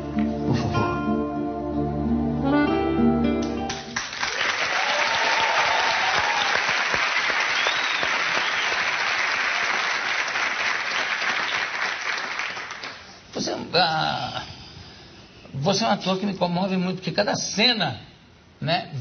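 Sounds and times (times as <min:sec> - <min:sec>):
music: 0:00.0 - 0:04.0
studio audience applause: 0:03.7 - 0:13.1.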